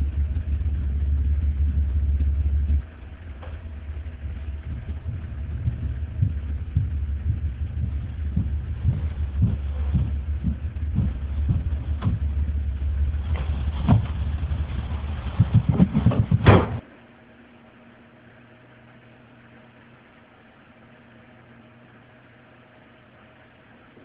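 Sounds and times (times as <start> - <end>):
low rumble with knocks: 0.0 - 16.8
door slamming shut: 16.4 - 16.8.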